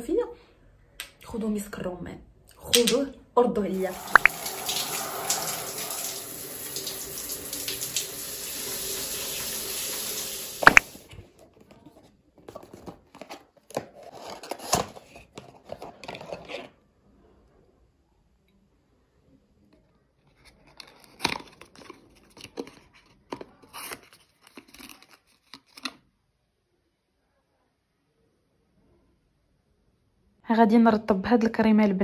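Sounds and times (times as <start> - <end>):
shower water running: 3.7 - 11.1.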